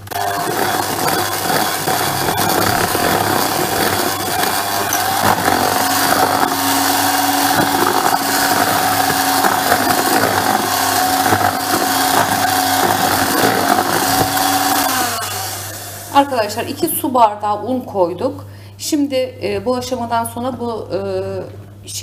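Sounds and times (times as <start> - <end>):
lower motor tone: 0.0 - 16.8
small electric motor whining: 0.0 - 16.9.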